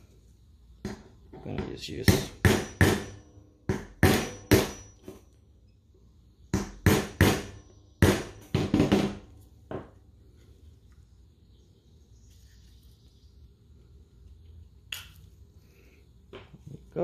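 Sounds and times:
hammer tapping metal punch: 0.8s - 5.2s.

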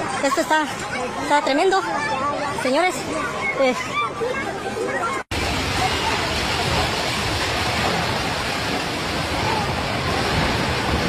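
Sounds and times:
faint crowd voices: 0.0s - 11.0s
steady rushing noise: 5.3s - 11.0s.

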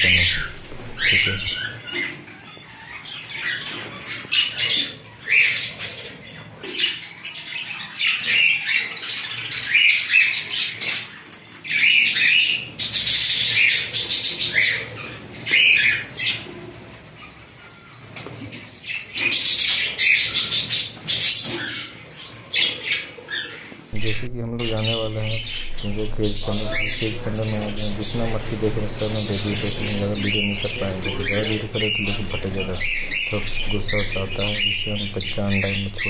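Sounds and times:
harsh bird screeching: 0.0s - 5.8s, 22.6s - 36.0s
budgerigars chattering: 0.0s - 16.6s, 18.8s - 36.0s.

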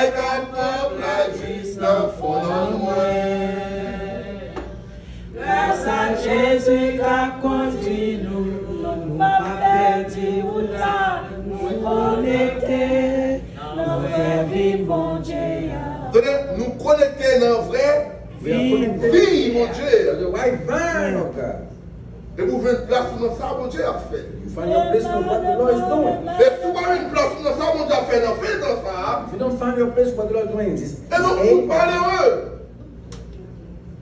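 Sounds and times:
congregation singing a hymn: 0.0s - 16.9s, 23.6s - 29.4s.

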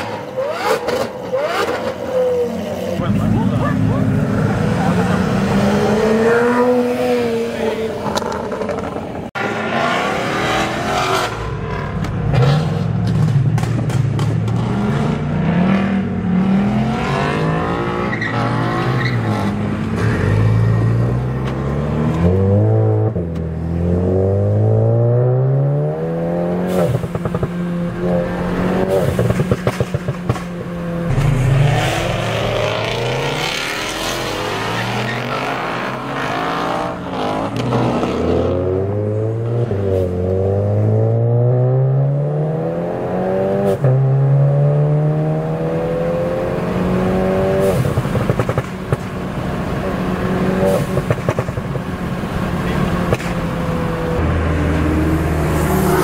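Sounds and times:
sports car engines revving: 0.0s - 56.0s
engine drone with stutter: 27.0s - 34.7s.

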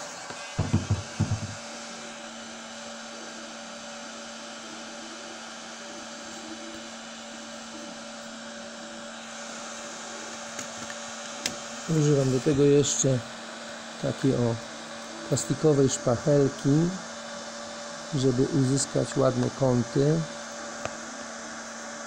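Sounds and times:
heat gun fan whirring: 0.0s - 22.0s
handling thumps: 0.6s - 1.6s.

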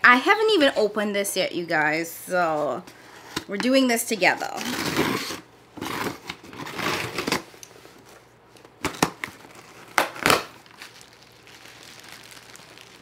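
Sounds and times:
plastic and paper rustling: 5.8s - 13.0s
packaging crinkle: 8.7s - 13.0s.

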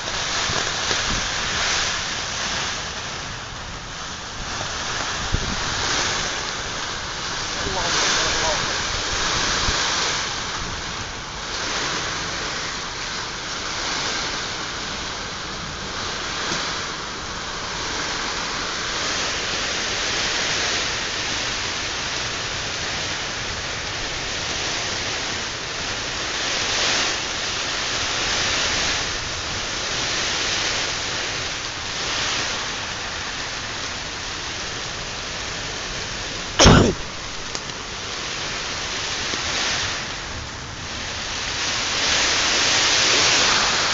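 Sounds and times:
heavy rain hissing: 0.0s - 43.9s.

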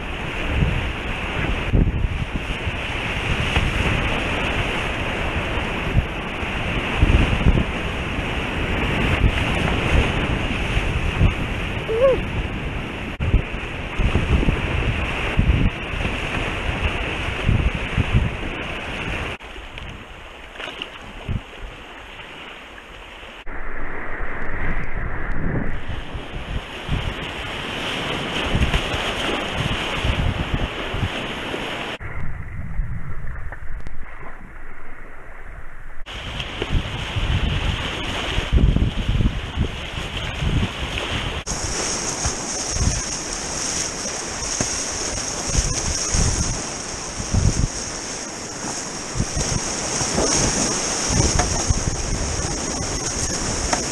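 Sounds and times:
wind buffeting microphone: 0.0s - 20.2s, 23.4s - 53.9s
whitewater rushing: 41.2s - 53.9s.

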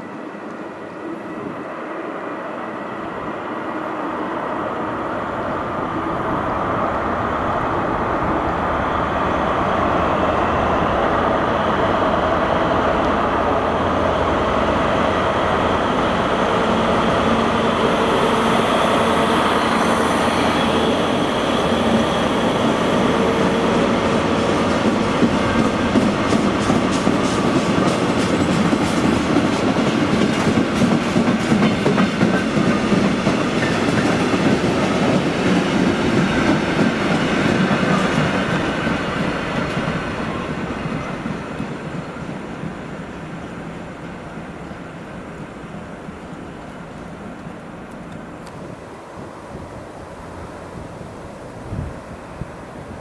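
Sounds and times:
train running past: 0.0s - 53.0s.

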